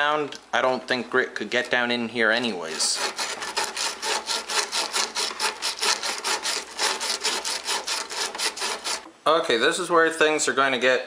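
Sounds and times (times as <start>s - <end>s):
emery cloth rasping on pipe: 2.6s - 9.1s.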